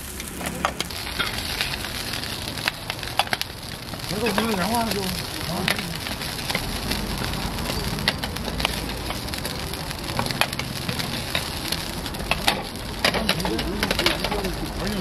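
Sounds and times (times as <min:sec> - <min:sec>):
pancakes sizzling in oil: 0:00.0 - 0:15.0.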